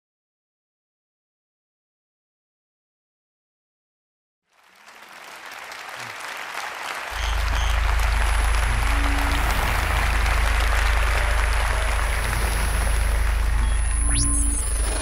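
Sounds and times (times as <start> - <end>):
audience applauding: 4.5 - 15.0
music with heavy bass: 7.2 - 15.0.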